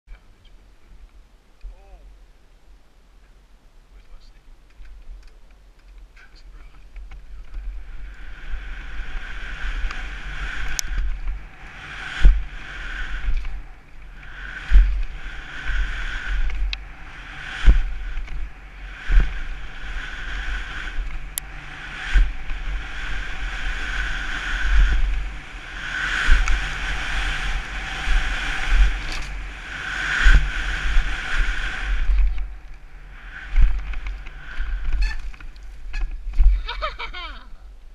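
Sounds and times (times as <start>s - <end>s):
wind rumbling on microphone: 0.1s - 37.9s
high buzz: 7.4s - 37.1s.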